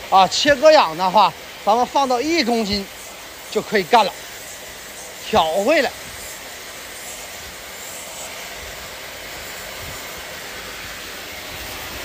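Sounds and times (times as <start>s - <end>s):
cutting torch flame hissing: 0.0s - 12.0s.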